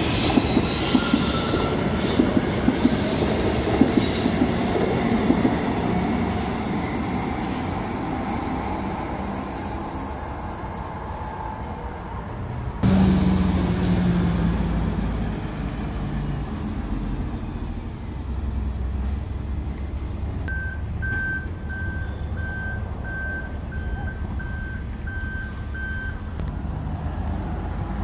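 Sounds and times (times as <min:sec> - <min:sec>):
low rumble of vehicle engines: 0:11.7 - 0:28.0
vehicle reversing alarm beeping: 0:20.5 - 0:26.3.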